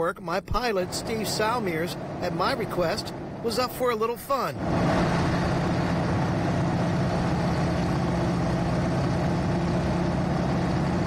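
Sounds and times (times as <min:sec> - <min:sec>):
radial engine droning: 0:00.6 - 0:11.0.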